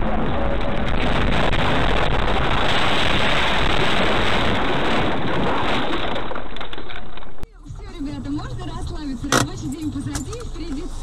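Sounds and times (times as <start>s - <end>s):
wind rushing on microphone: 0.0s - 6.6s
road roar: 7.5s - 11.0s.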